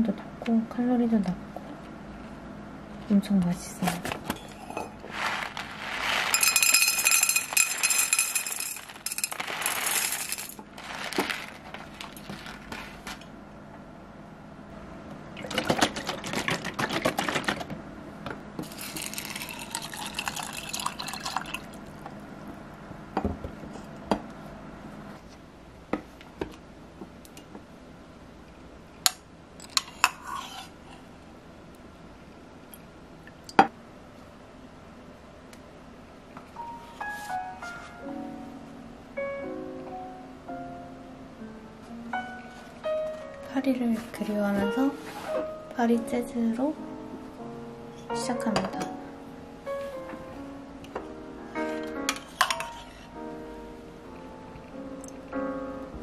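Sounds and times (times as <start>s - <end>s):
granola and milk pouring into mug: 5.0s - 12.9s, 18.6s - 21.8s
foil pouch crinkling: 5.1s - 6.7s, 7.5s - 13.2s
metal spoon clinking on mug: 6.4s - 9.3s.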